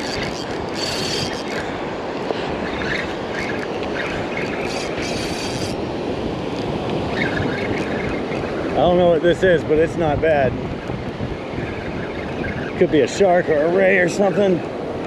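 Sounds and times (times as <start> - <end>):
fishing reel whirring and clicking: 0.0 - 8.7
wind on microphone: 0.0 - 15.0.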